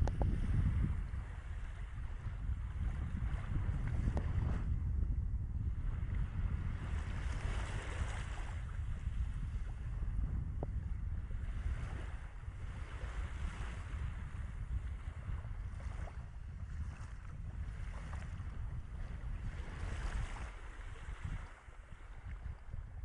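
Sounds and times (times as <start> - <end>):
wind buffeting microphone: 0.0 - 23.0
small waves lapping: 6.8 - 9.9, 11.3 - 22.8.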